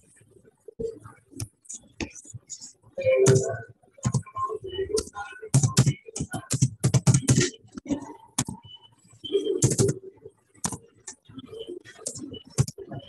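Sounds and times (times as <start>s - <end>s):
typing on computer keyboard: 9.6s - 10.0s.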